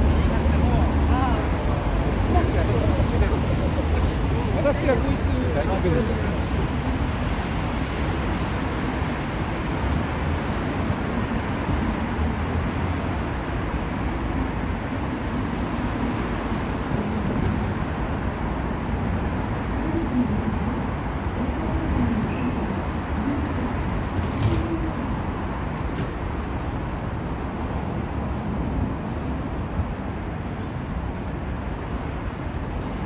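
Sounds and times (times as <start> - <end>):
cars passing on city street: 0.0 - 33.0.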